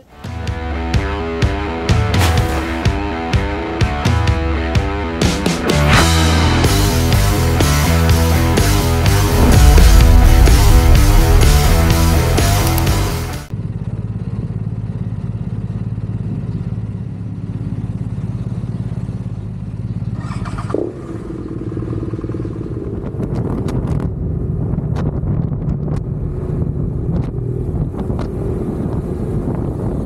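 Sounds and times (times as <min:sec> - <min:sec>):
motorcycle engine running: 0:02.4 - 0:24.9.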